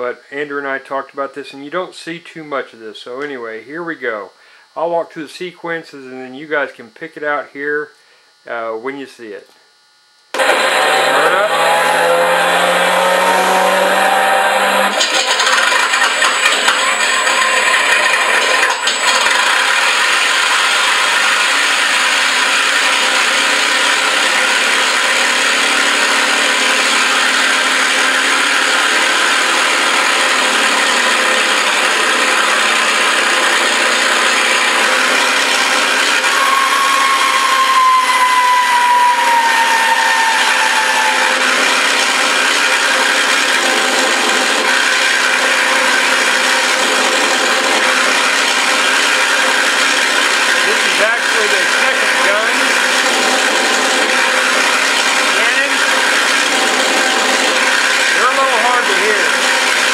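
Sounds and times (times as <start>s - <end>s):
simulated piston engine sound: 10.3s - 59.9s
thin whine sliding down: 10.4s - 19.8s, 35.9s - 43.4s.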